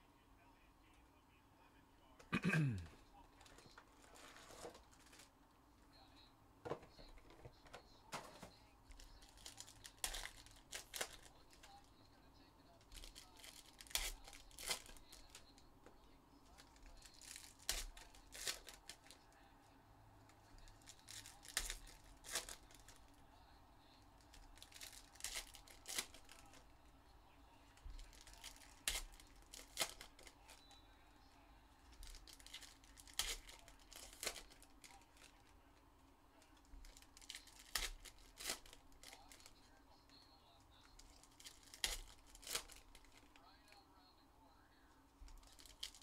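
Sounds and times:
card pack wrappers crinkling: 0:03.4 - 0:05.3, 0:08.1 - 0:11.9, 0:12.8 - 0:15.7, 0:16.4 - 0:19.3, 0:20.4 - 0:23.2, 0:24.2 - 0:26.7, 0:27.8 - 0:30.6, 0:31.9 - 0:35.6, 0:36.6 - 0:39.7, 0:40.8 - 0:43.4, 0:45.2 - 0:46.0.

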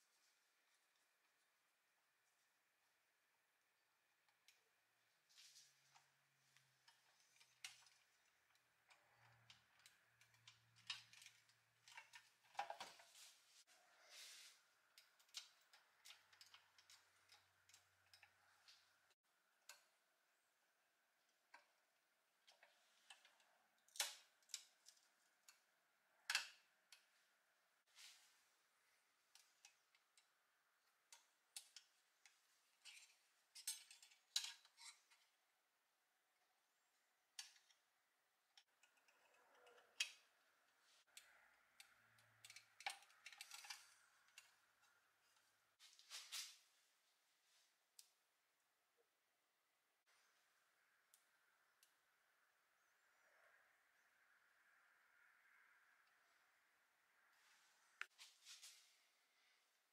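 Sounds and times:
small metal clicks and taps: 0:05.9 - 0:13.2, 0:14.8 - 0:20.0, 0:21.3 - 0:27.2, 0:29.3 - 0:35.4, 0:37.3 - 0:37.9, 0:38.5 - 0:45.5
metal scraping and clinking: 0:42.3 - 0:45.0.

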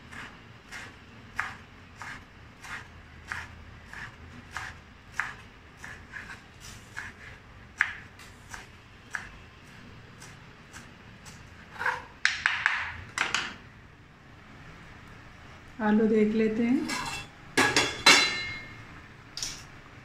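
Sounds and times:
knife chopping on wooden board: 0:07.8 - 0:09.3.

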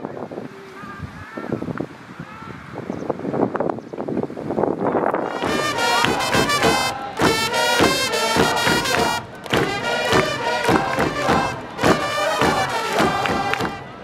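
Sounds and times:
music with quick steady beat: 0:05.3 - 0:14.0.

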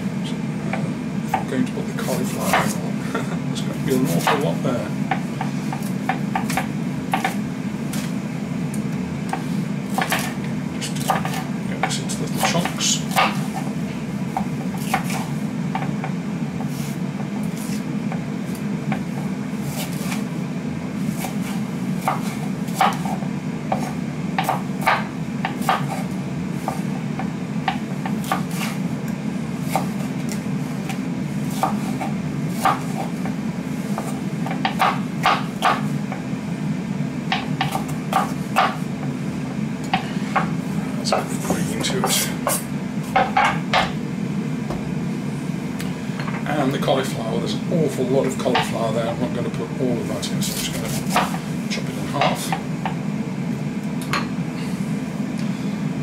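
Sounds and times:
steady low hum: 0:00.0 - 0:56.0
knife chopping on wooden board: 0:02.3 - 0:02.8, 0:04.0 - 0:08.1, 0:09.3 - 0:13.7, 0:14.3 - 0:19.1, 0:21.2 - 0:28.8, 0:29.7 - 0:36.2, 0:37.3 - 0:38.9, 0:50.5 - 0:51.4.

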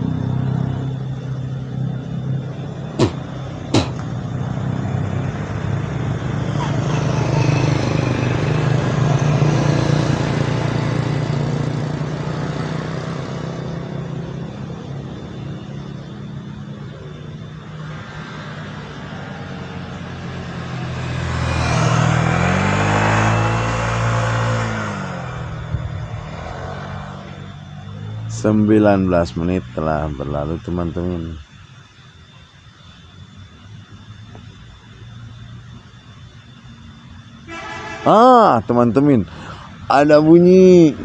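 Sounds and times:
motorcycle engine running: 0:00.0 - 0:17.8
vehicle passing by: 0:00.0 - 0:30.1, 0:38.0 - 0:41.0.

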